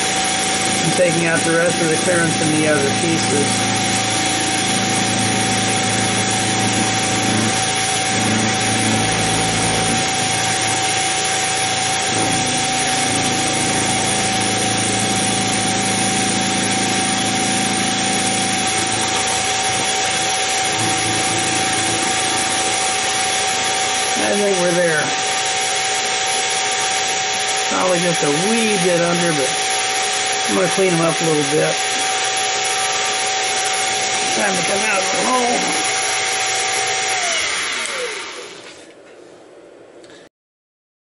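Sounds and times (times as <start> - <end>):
end mill cutting metal: 0.0 - 38.8
mill motor whine: 0.0 - 39.0.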